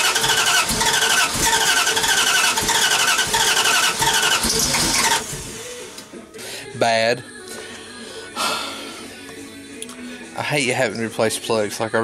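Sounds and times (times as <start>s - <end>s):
starter motor cranking: 0.0s - 5.6s.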